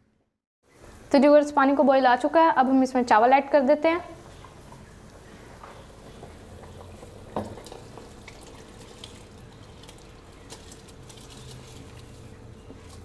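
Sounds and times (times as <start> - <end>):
water bubbling at a boil: 4.3 - 12.3
rice pouring with clicks and splashes: 6.7 - 13.0.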